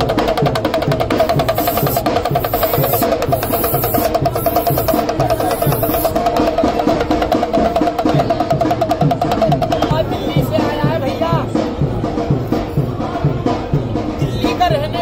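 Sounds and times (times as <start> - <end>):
pellet drum rattling rapidly: 0.0 - 11.4.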